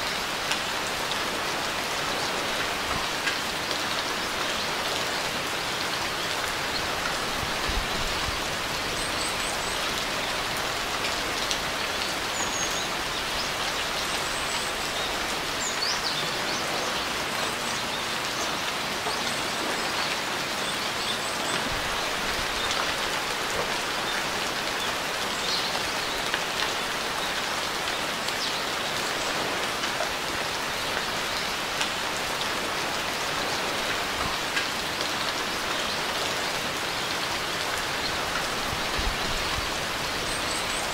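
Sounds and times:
rain pattering: 0.0s - 40.9s.

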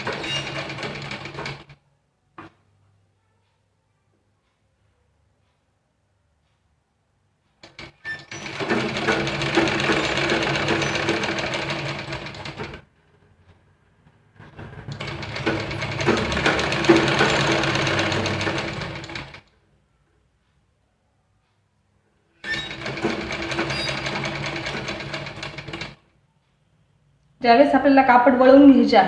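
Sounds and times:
sewing machine clicks: 0.0s - 1.8s, 7.6s - 13.2s, 14.4s - 19.5s, 22.4s - 26.0s
sewing machine stitching: 0.0s - 1.8s, 7.6s - 13.3s, 14.4s - 19.5s, 22.4s - 26.0s.

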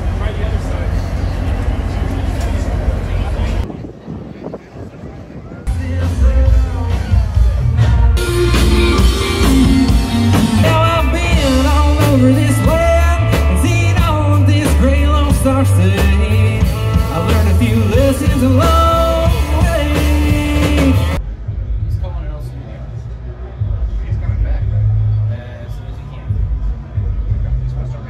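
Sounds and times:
live rock band playing: 5.7s - 21.2s
male lead vocal: 5.7s - 21.2s.

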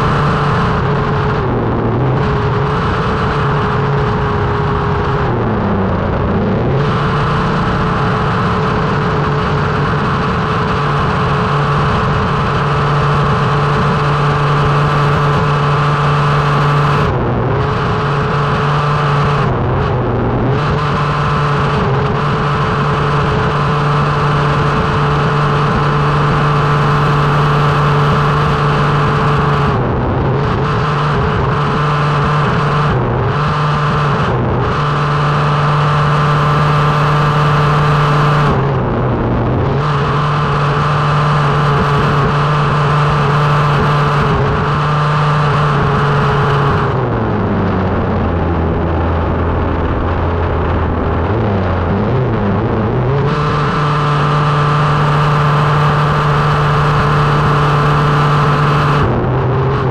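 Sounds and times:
road and wind rush: 0.0s - 59.9s
small two-stroke engine revving: 51.2s - 59.9s.

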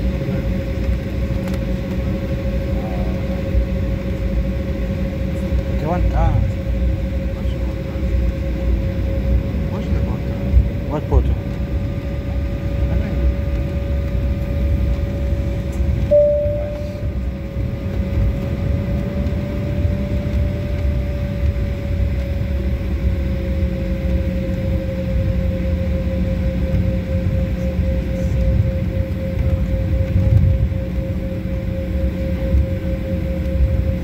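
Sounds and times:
jet airliner taxiing: 0.0s - 34.0s.

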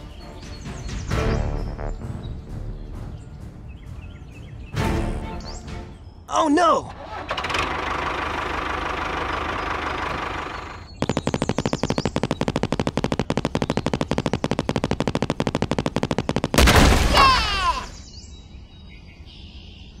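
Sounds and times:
steady engine-like noise: 6.9s - 16.1s
rock drill hammering: 9.2s - 17.0s.

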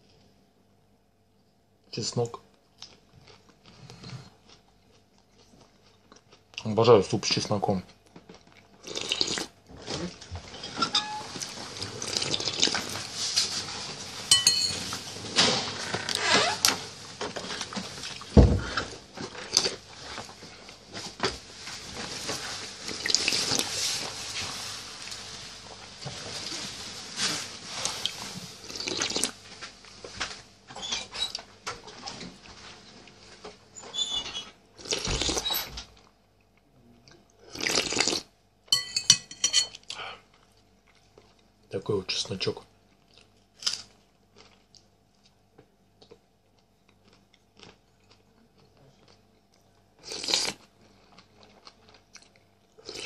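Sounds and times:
soup slurping and chewing: 8.5s - 10.6s, 11.2s - 13.1s, 22.9s - 23.8s, 27.8s - 29.4s, 34.8s - 35.6s, 37.4s - 38.3s, 50.0s - 51.3s, 51.9s - 53.0s
person slurping soup: 8.8s - 9.5s, 11.8s - 12.9s, 28.6s - 29.3s, 37.5s - 38.3s, 50.0s - 50.6s
spoon clinking against dish: 14.3s - 14.8s, 38.7s - 39.8s.

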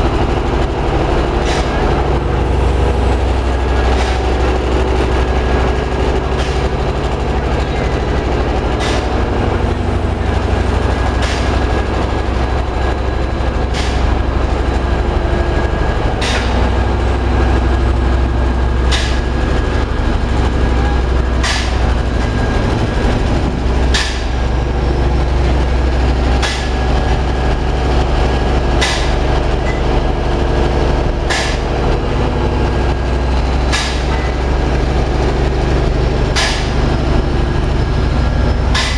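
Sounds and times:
machinery droning: 0.0s - 38.9s.

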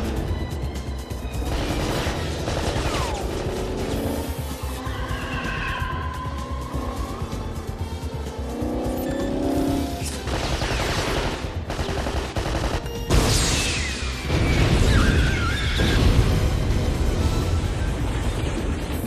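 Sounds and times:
film score: 0.0s - 19.0s
gunfire: 1.4s - 4.0s, 10.1s - 13.6s.

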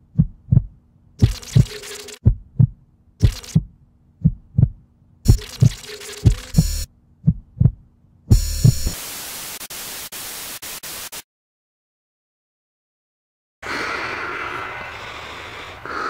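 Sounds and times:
heartbeat low thumps: 0.0s - 9.0s
static hiss: 8.3s - 11.2s.

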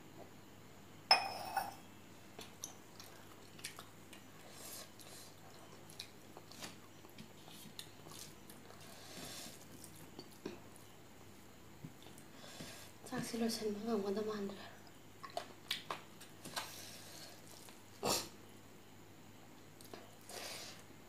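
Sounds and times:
metal cup clinking: 1.1s - 1.8s.

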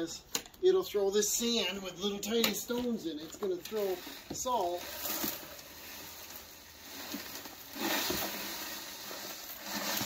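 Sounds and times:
sand and stones pouring into plastic: 3.7s - 10.0s.

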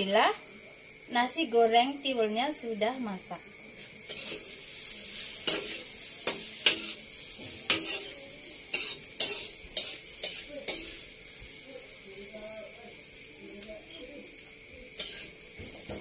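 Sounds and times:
food sizzling in a wok: 0.0s - 16.0s
metal spatula scraping a pan: 4.0s - 11.1s, 15.0s - 16.0s.

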